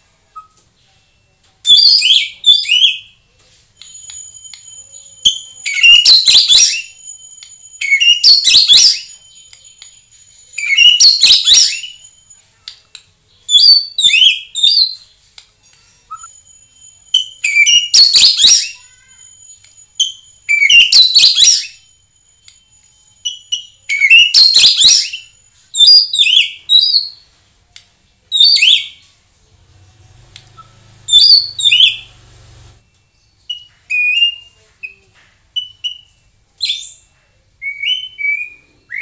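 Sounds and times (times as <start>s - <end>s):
bird singing whistled phrases: 5.2s - 12.3s, 16.1s - 21.9s, 22.6s - 27.2s, 33.5s - 35.0s, 35.6s - 39.0s
thin high bird notes: 15.6s - 20.8s.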